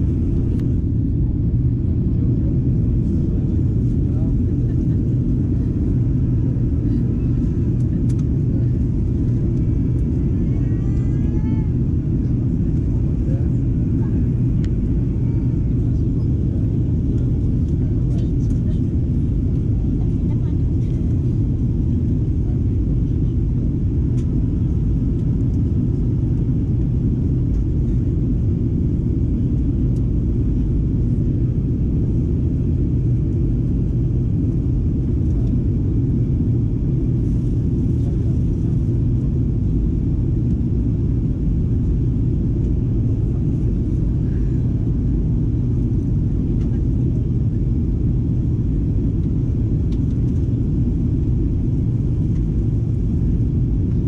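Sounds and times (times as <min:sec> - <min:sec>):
airplane cabin rumble: 0:00.0 - 0:54.0.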